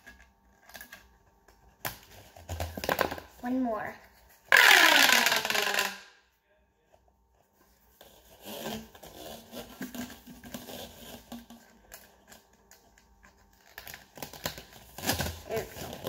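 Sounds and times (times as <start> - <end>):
plastic tubes crackling and clicking: 4.5 - 6.0.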